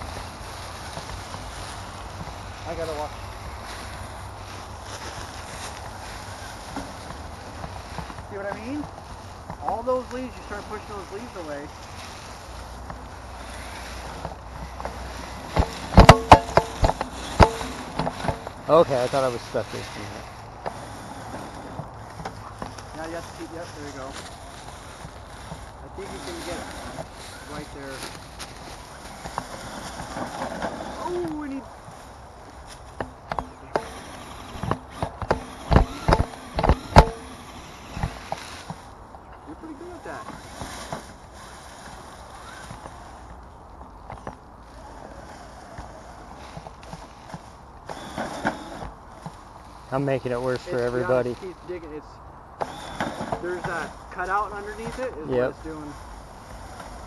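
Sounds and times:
sharp clicks and knocks: 14.1 - 18.7, 32.7 - 38.9
sharp knocks and clacks: 14.2 - 18.6
short motor whine: 52.6 - 53.4.

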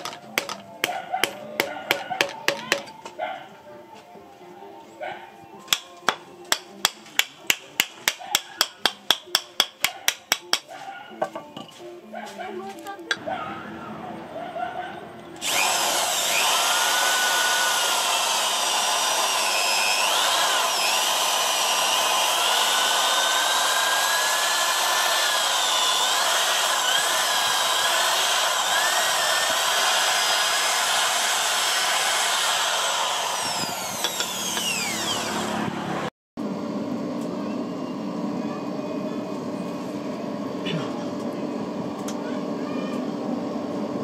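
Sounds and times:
power drill whining into wood: 15.4 - 36.1.

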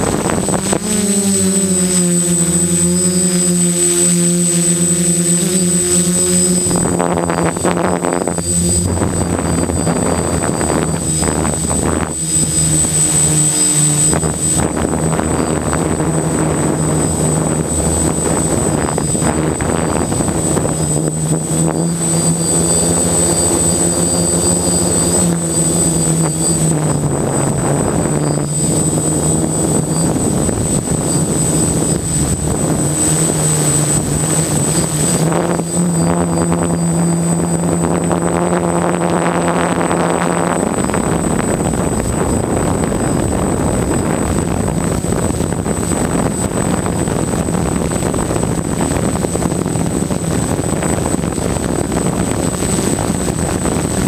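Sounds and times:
drone motors buzzing: 0.0 - 54.0
thin high whine: 0.0 - 54.0.

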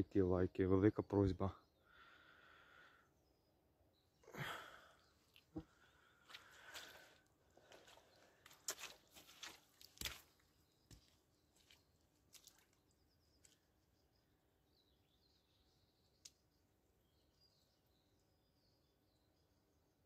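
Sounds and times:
faint bird chirps: 0.8 - 7.1, 10.2 - 20.0
footsteps on wet wooden planks: 5.4 - 13.6.

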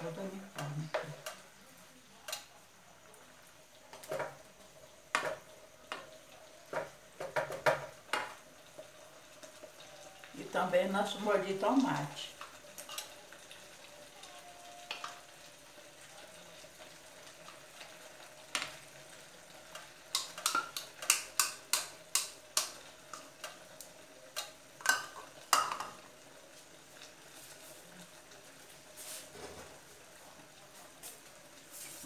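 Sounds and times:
meat sizzling in frying pan: 0.0 - 32.0
spoon knocking and scraping: 24.8 - 26.0.

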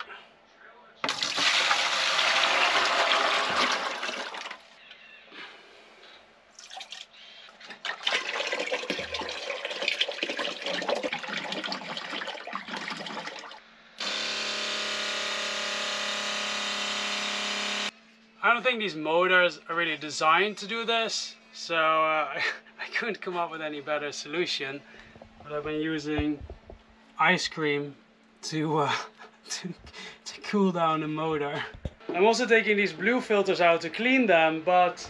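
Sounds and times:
motor hum: 14.0 - 17.9.

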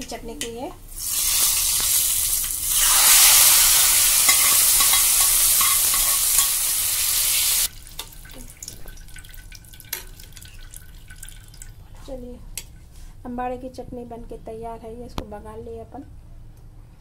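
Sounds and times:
hot oil sizzling: 0.9 - 11.2.

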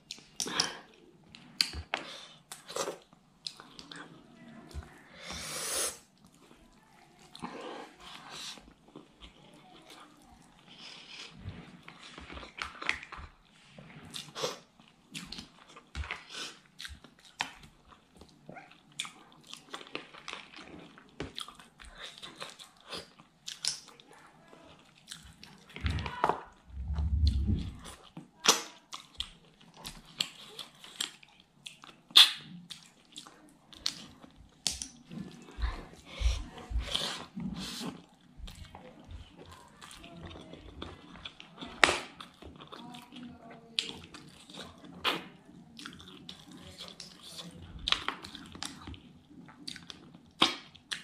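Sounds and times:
wet chewing and lip smacks: 14.1 - 24.0, 24.8 - 25.8, 26.5 - 43.2, 43.8 - 51.0
low muffled sound: 25.8 - 28.0.

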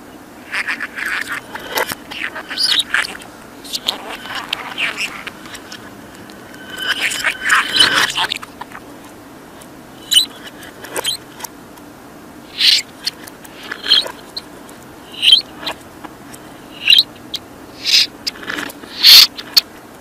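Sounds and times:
budgerigar chirping: 0.5 - 5.3, 12.6 - 12.9, 13.7 - 14.1, 15.1 - 15.4, 16.8 - 17.1, 17.8 - 18.1, 18.9 - 19.3.

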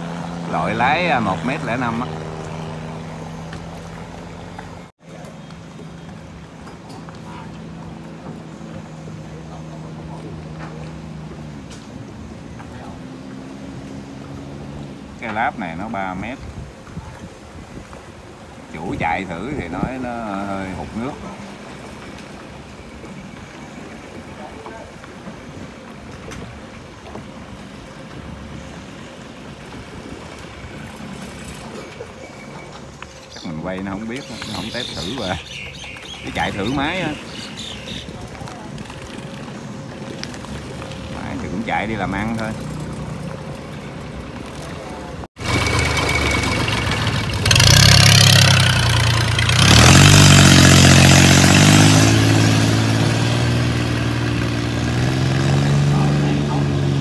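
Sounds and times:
wind on microphone: 16.1 - 21.8
boat engine running: 36.3 - 57.0.

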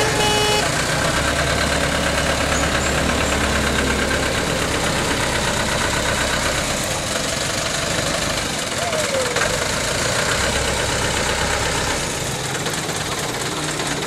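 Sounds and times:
tune of held tones: 0.0 - 0.7
bus engine idling: 0.0 - 14.0.

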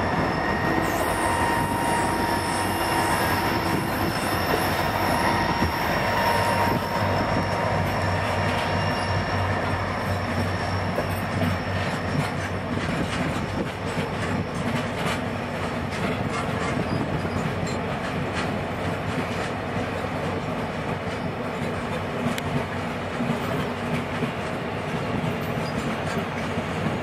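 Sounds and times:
high wheel squeal: 0.0 - 12.6
steel wheels rumbling on rail: 0.0 - 27.0
wheels clicking over rail joints: 10.3 - 27.0.

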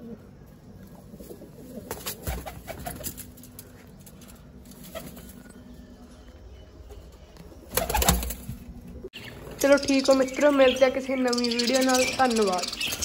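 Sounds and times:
pigeons cooing: 0.0 - 3.7.

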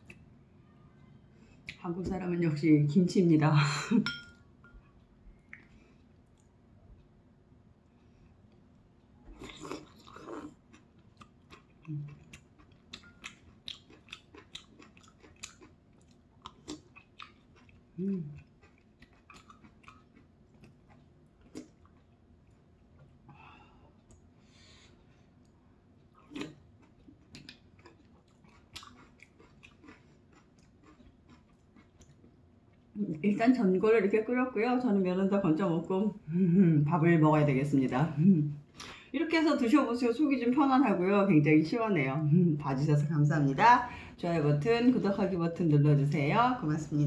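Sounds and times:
wet chewing: 9.3 - 23.2, 25.4 - 32.9.

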